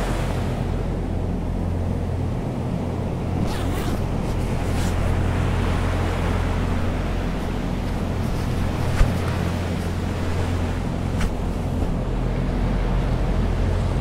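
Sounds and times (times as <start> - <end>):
low wind rumble: 0.0 - 14.0
brief rustles: 7.4 - 12.0.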